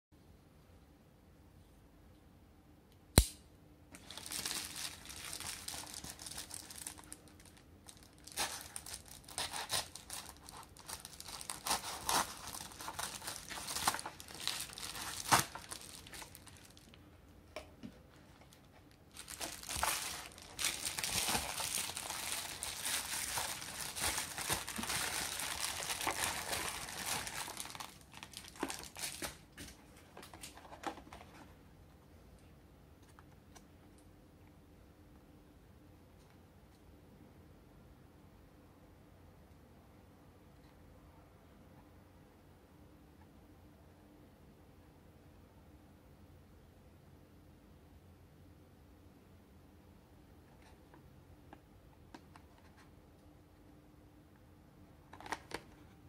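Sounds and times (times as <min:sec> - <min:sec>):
sharp click: 0:02.9 - 0:03.5
plastic mailer crinkling and tearing: 0:04.0 - 0:17.0, 0:18.4 - 0:29.4, 0:55.2 - 0:55.7.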